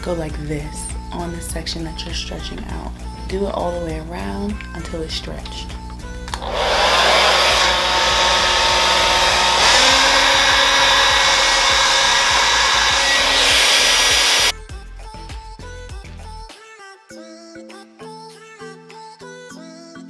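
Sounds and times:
blow dryer running: 6.3 - 14.5.

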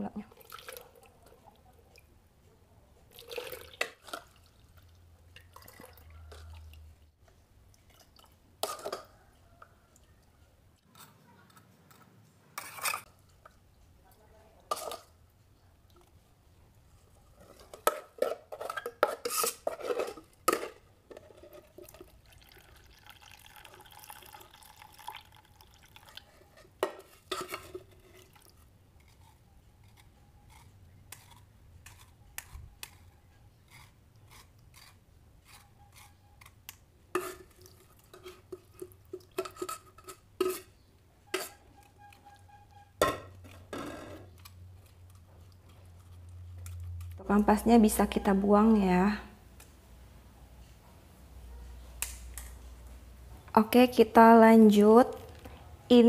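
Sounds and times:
liquid dripping: 21.8 - 26.3.

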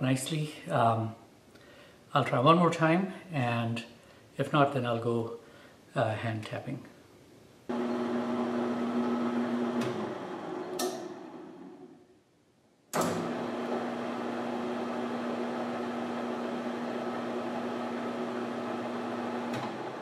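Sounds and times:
lathe motor hum: 7.7 - 12.0, 13.0 - 20.0
click: 9.8 - 10.0, 10.6 - 11.1.

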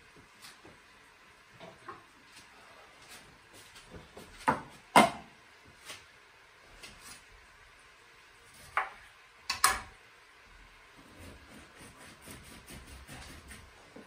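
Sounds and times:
utensils knocking on countertop: 8.8 - 9.9.

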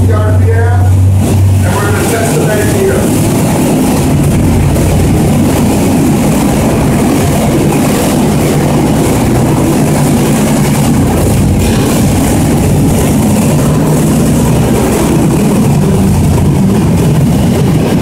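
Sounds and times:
piston aircraft engine droning: 0.0 - 18.0.

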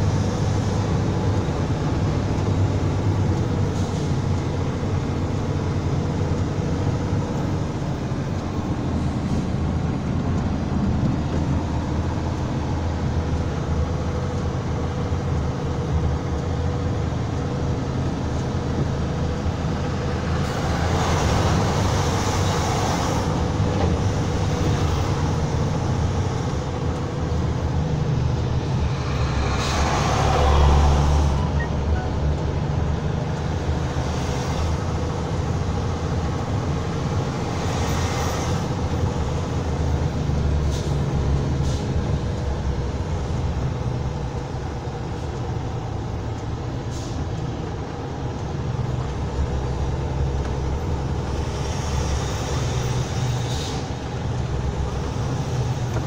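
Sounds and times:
road noise: 0.0 - 56.0
rushing swells: 20.0 - 31.6.

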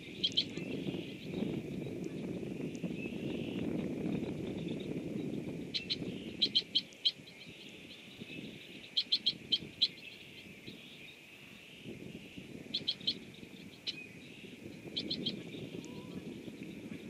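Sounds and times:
bird calls in quick bursts: 5.7 - 7.3.

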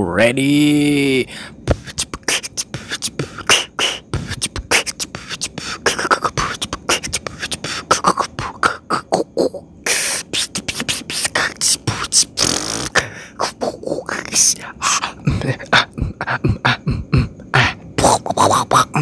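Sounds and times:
person beatboxing: 1.5 - 19.0.

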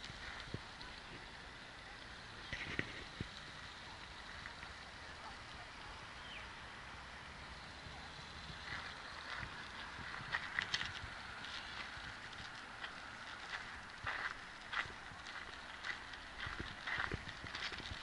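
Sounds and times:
low background hiss: 0.0 - 18.0
footsteps on gravel: 8.5 - 18.0.

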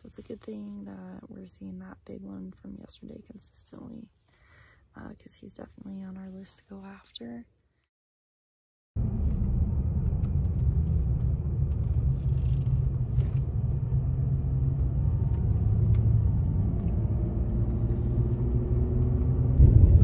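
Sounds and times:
truck engine and tyre noise: 9.0 - 20.0.

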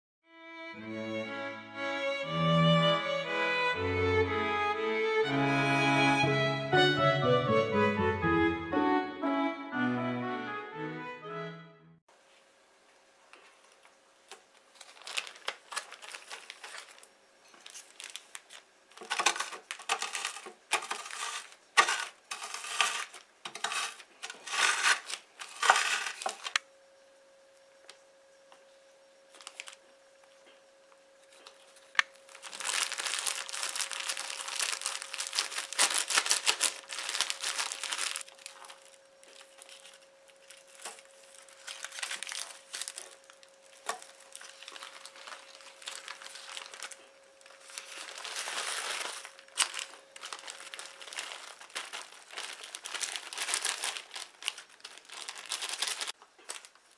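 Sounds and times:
plastic bag crinkling: 13.6 - 26.6, 29.4 - 29.8, 31.3 - 56.9
biscuits crunching: 31.3 - 56.8.

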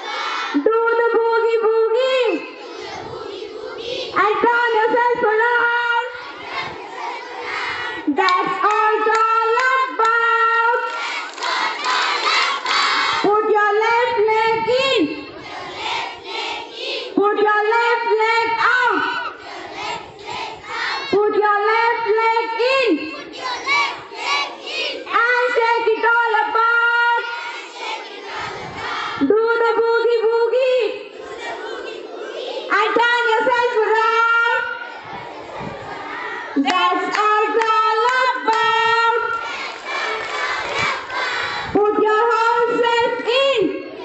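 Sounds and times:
children shouting: 0.0 - 0.6, 2.5 - 4.3, 6.0 - 8.5, 10.8 - 13.3, 18.7 - 21.2, 23.0 - 25.6, 31.2 - 33.5, 34.2 - 37.6, 38.3 - 41.8
children chanting sing-song: 0.0 - 44.0.

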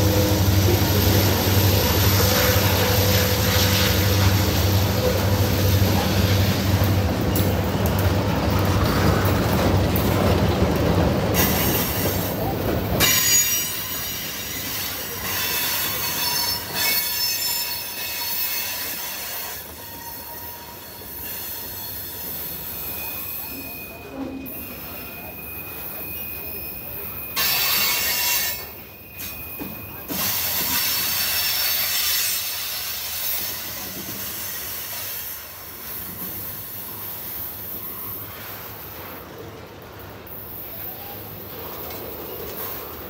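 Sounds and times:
freight cars rumbling on rails: 0.0 - 43.0
high wheel squeal: 11.4 - 33.5.

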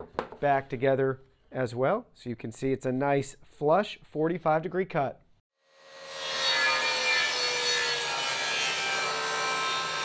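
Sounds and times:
table saw cutting wood: 5.6 - 10.0.

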